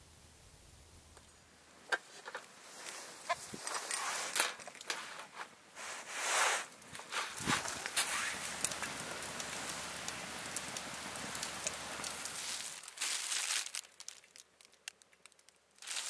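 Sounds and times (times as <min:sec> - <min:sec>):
wood fire crackling: 0:00.3 - 0:16.0
plastic food pack crinkling: 0:11.3 - 0:16.0.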